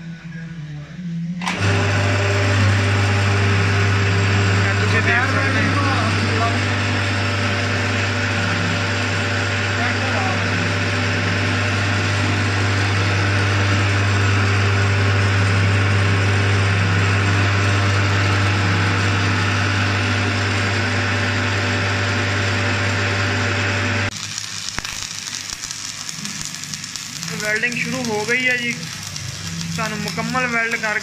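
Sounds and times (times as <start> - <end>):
metal lathe humming: 1.4 - 24.2, 26.1 - 31.0
electric arc welding crackle: 1.5 - 31.0.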